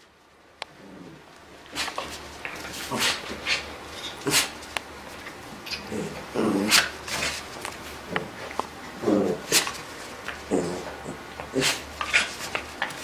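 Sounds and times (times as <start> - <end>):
dog low calls: 10.4 - 12.4.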